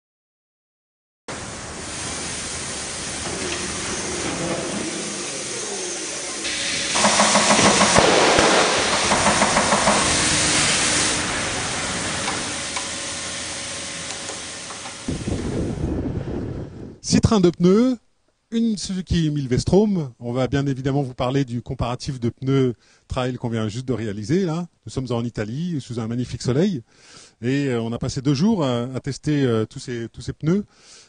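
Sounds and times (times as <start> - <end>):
workshop noise: 1.3 - 15.7
compressed air hissing: 1.3 - 16.9.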